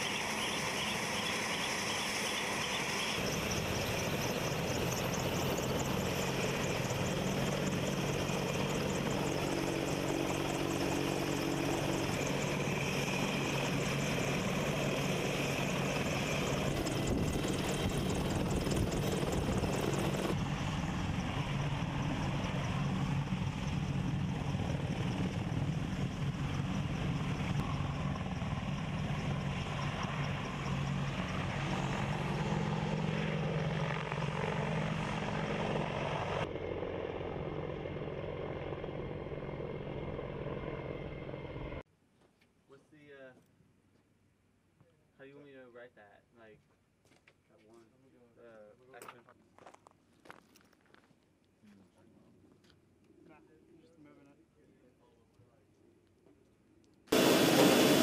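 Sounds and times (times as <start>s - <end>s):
helicopter rotor and engine drone: 0.0s - 41.8s, 57.1s - 58.0s.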